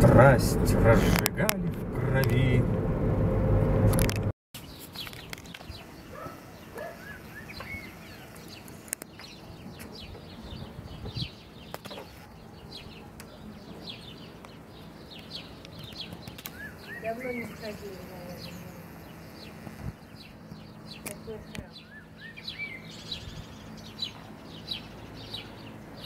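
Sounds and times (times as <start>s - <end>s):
small birds chirping: 4.6s - 26.0s
sharp clicks: 15.6s - 16.6s.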